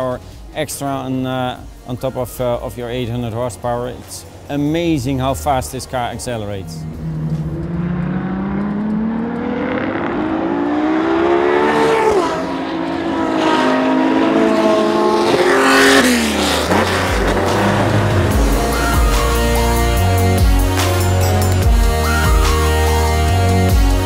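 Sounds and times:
race engine accelerating: 6.2s - 23.8s.

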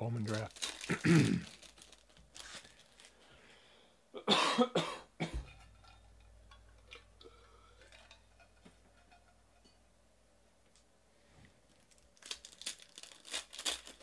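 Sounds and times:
man coughing: 0.9s - 1.5s, 4.2s - 5.4s
faint clicks and rustles: 10.6s - 14.0s.

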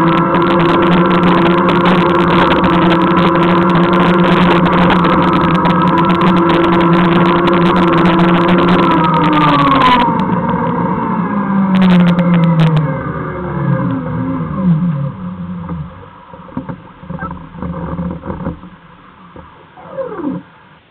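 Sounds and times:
electric drive whining: 0.0s - 20.9s
quiet uneven rumble: 11.7s - 20.9s.

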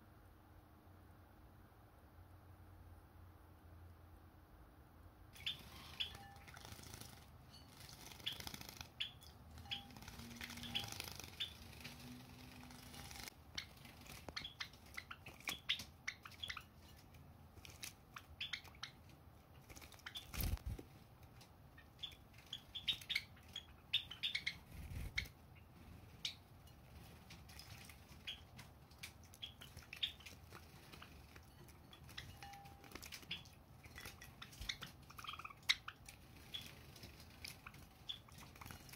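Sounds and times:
birds splashing in water: 5.4s - 16.9s, 27.0s - 38.9s.

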